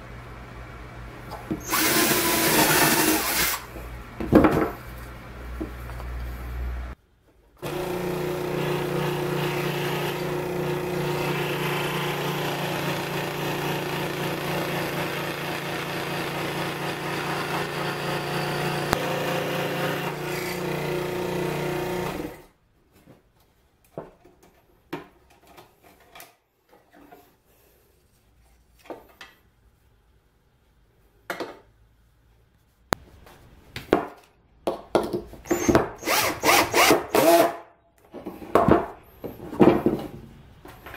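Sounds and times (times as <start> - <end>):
cordless drill whirring: 1.6 - 3.7, 35.5 - 37.5
scroll saw cutting wood: 1.6 - 3.7, 7.6 - 22.5, 35.5 - 37.6.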